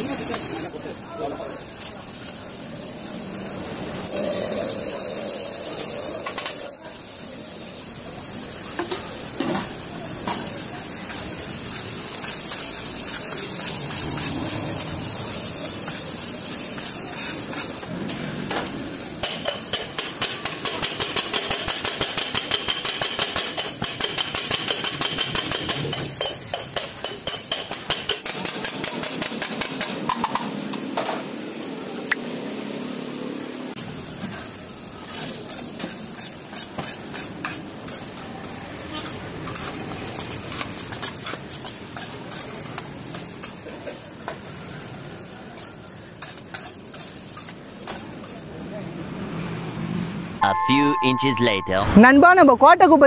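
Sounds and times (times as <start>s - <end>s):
food sizzling on griddle: 0.0s - 50.3s
steel blades chopping on griddle: 18.5s - 31.2s, 35.1s - 38.3s
metal spatula scraping: 35.1s - 38.1s.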